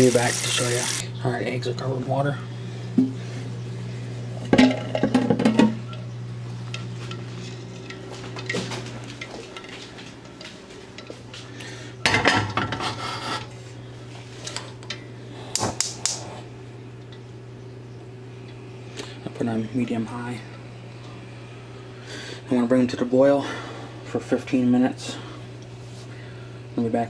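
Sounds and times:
steady low hum: 0.0s - 27.0s
metal pot clattering on grate: 4.5s - 5.8s.

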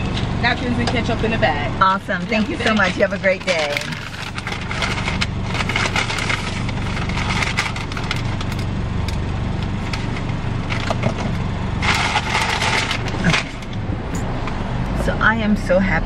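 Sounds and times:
car engine idling: 0.0s - 16.0s
paper bag rustling: 2.4s - 8.6s, 9.8s - 13.7s.

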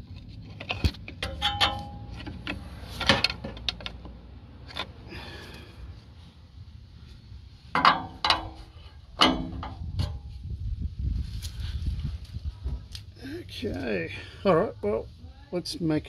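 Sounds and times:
hand tool tapping on metal: 1.1s - 4.0s, 7.8s - 10.2s.

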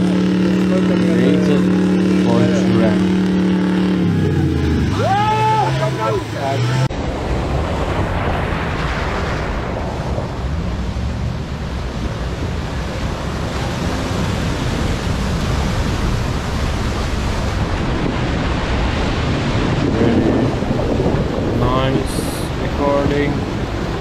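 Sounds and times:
engine running low: 0.0s - 24.0s.

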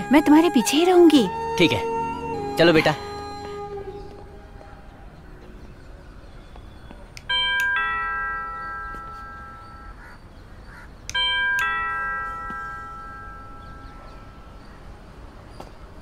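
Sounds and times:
doorbell ding-dong chime: 7.3s - 10.0s, 11.1s - 14.5s.

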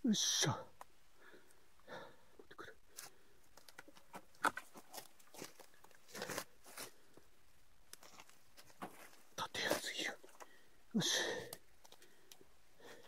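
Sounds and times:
footsteps crunching on dirt and stones: 3.8s - 7.0s, 8.0s - 10.5s.

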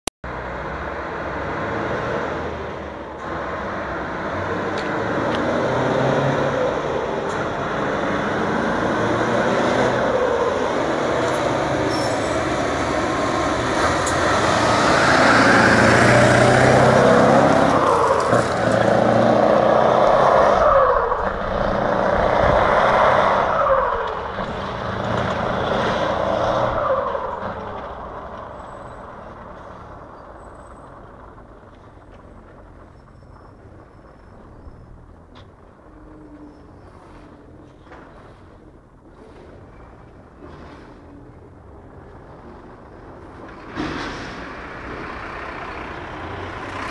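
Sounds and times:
diesel truck engine accelerating: 0.2s - 46.9s.

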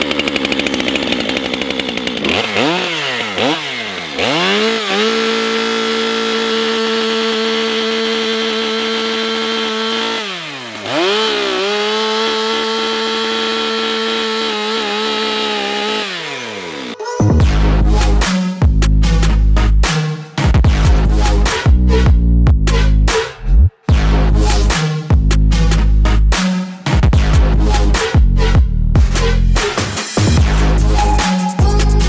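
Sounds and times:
chainsaw cutting log: 0.0s - 22.0s.

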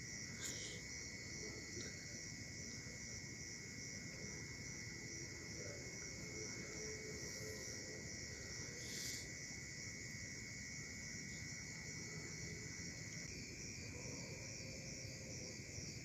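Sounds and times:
crickets trilling: 0.0s - 16.0s
insect drone: 0.0s - 16.0s.

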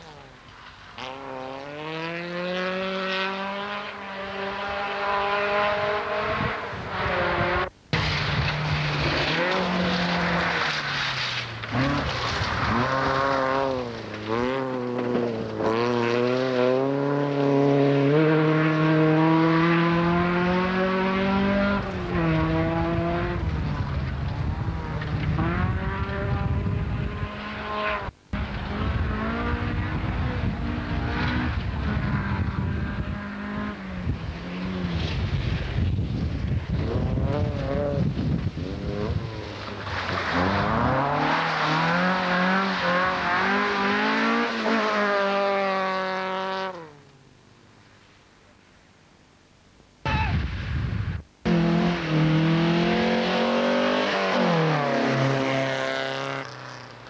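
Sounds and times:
rally car engines revving: 0.0s - 47.2s, 51.4s - 57.0s.

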